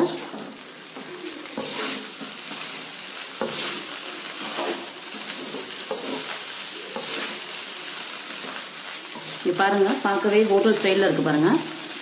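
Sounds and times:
rice sizzling in a pan: 0.0 - 12.0
spatula scraping a pan: 1.5 - 10.8.

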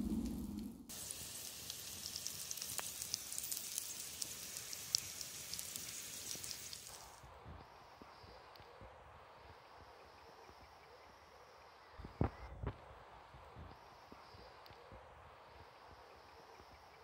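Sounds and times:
potatoes sizzling in a pan: 0.9 - 7.2.

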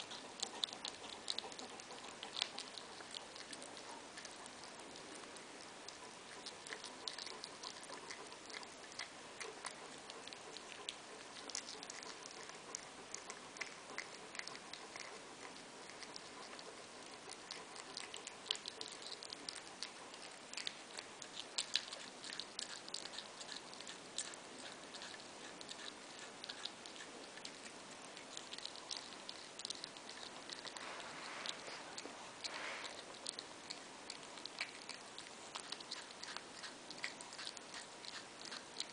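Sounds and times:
cat chewing with crunches: 0.0 - 38.9
steady hiss: 29.0 - 36.2.

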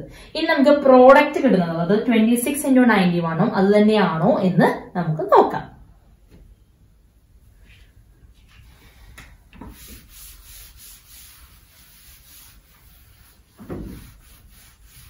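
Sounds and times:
cloth rubbing on chalkboard: 9.6 - 15.0.

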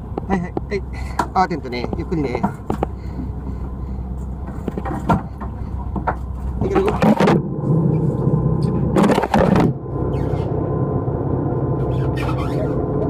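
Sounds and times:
boat engine humming: 0.0 - 13.0.

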